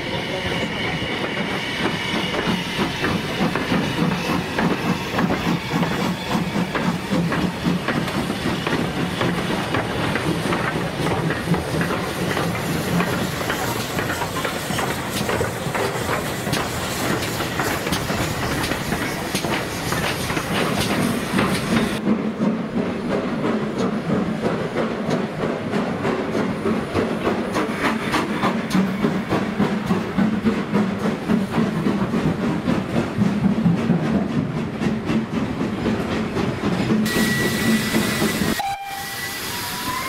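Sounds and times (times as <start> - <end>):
steam hissing: 0.0 - 22.2, 36.8 - 40.0.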